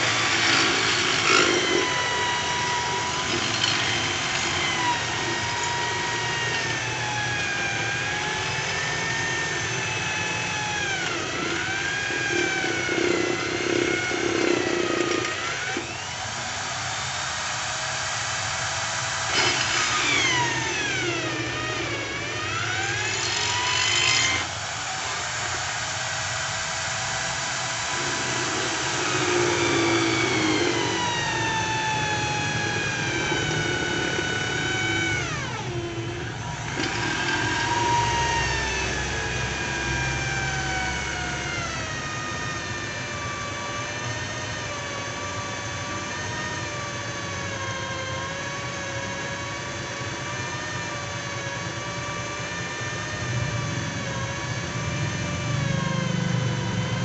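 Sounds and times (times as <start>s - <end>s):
electric drill motor whine: 0.0s - 57.0s.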